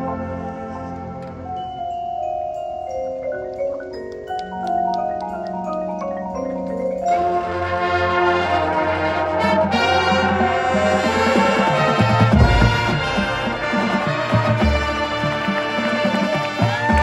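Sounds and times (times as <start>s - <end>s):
brass section playing loud: 0.0s - 1.4s, 7.2s - 17.0s
mallet percussion chord: 9.6s - 17.0s
heavy low drum hits: 12.3s - 15.0s.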